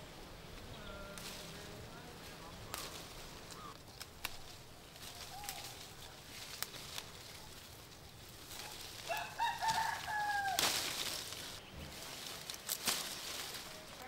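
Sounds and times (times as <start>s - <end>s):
loud rustling: 2.2s - 14.0s
rooster crowing: 9.0s - 10.6s.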